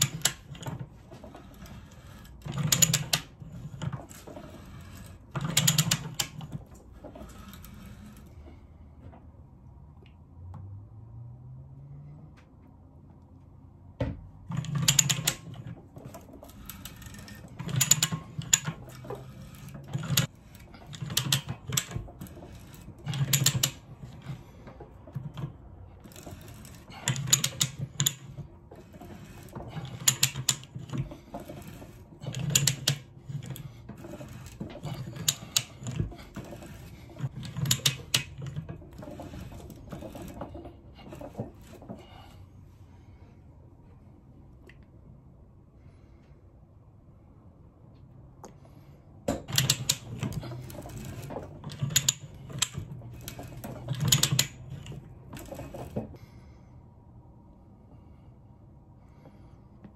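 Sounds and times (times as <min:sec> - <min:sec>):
ratcheting pipe threader clicking: 0:00.0 - 0:08.3, 0:14.5 - 0:42.0, 0:49.3 - 0:56.2.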